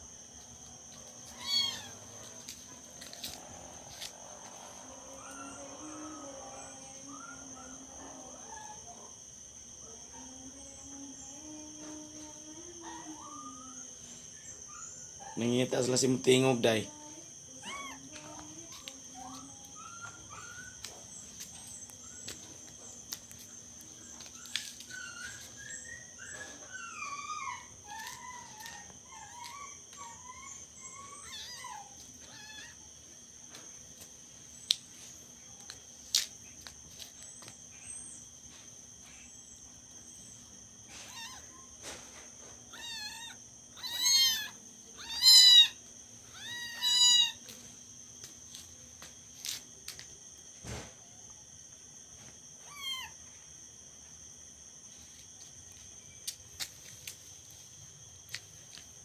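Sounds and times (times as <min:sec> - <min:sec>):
kittens meowing: 0:01.2 - 0:02.1, 0:17.6 - 0:21.0, 0:24.4 - 0:32.8, 0:40.9 - 0:41.7, 0:42.7 - 0:47.5, 0:52.6 - 0:53.2.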